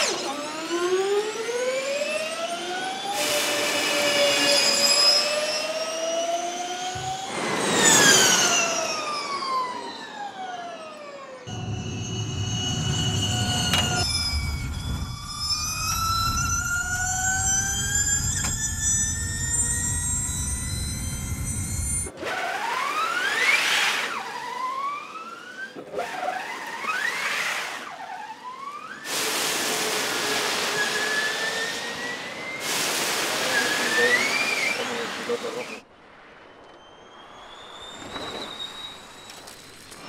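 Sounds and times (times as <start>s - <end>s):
electric race car motor whine: 0.0s - 35.8s
low rumble: 11.5s - 22.1s
tyres hissing on wet track: 32.5s - 35.8s.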